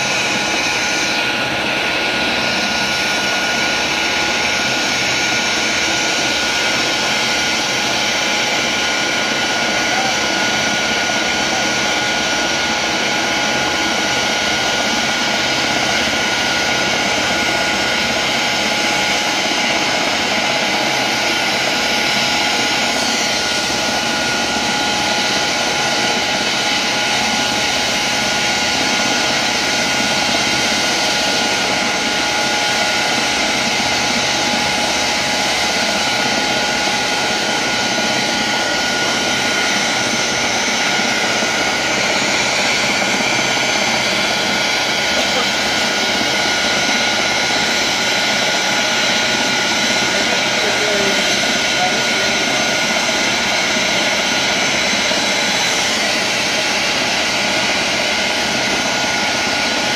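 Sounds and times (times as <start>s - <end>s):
helicopter rotor rushing: 0.0s - 59.9s
helicopter turbine whine: 0.0s - 59.9s.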